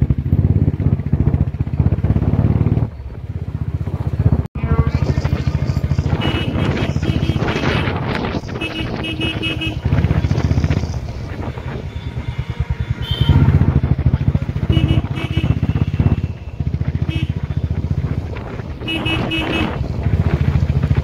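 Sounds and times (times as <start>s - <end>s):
motorcycle engine revving: 0.0s - 21.0s
horn beeps: 5.8s - 10.3s, 11.3s - 17.6s, 18.8s - 19.8s.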